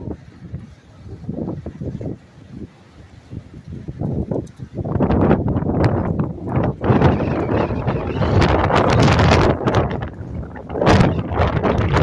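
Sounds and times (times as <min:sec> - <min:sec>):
gusty wind buffeting microphone: 0:00.0 - 0:12.0.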